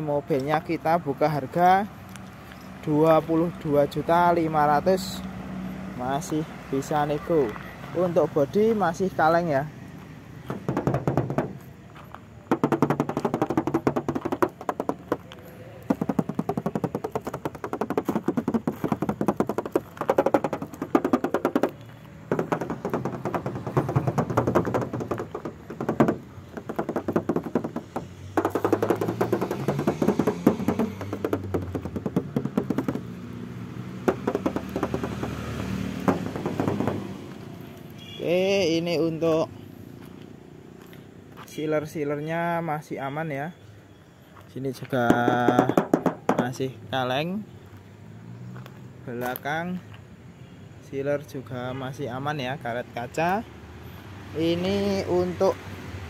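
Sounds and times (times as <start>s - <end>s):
fingers tapping on sheet metal: 10.5s - 11.6s, 12.5s - 33.2s, 34.0s - 37.2s, 45.0s - 46.6s.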